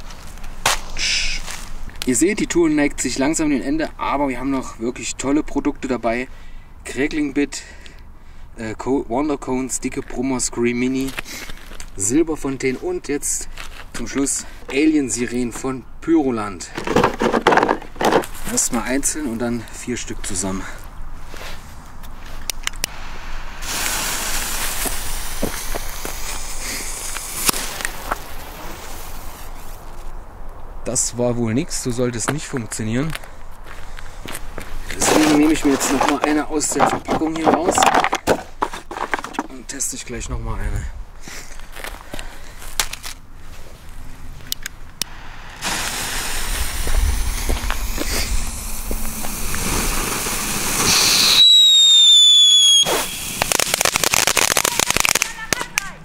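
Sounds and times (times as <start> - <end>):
footsteps in snow: 0.0 - 1.9, 12.5 - 14.6, 20.8 - 22.5
fuse hissing and sputtering: 22.9 - 29.7, 45.0 - 54.6
firework pops and crackles: 23.6 - 29.7, 45.6 - 55.9.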